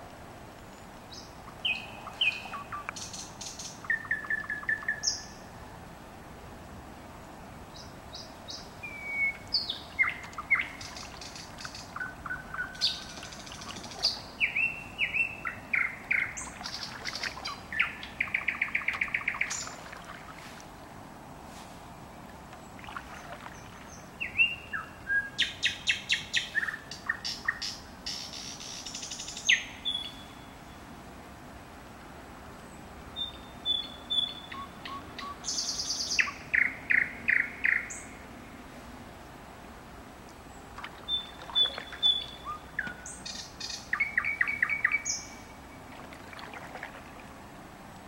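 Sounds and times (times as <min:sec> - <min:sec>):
songbird singing whistles and trills: 0:01.1 - 0:05.4, 0:07.8 - 0:19.8, 0:23.9 - 0:30.6, 0:33.2 - 0:38.2, 0:41.0 - 0:45.5.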